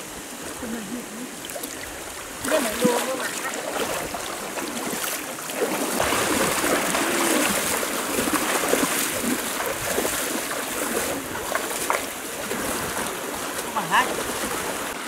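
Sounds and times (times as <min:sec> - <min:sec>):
river current rushing: 0:00.0 - 0:15.0
legs splashing through water: 0:00.6 - 0:15.0.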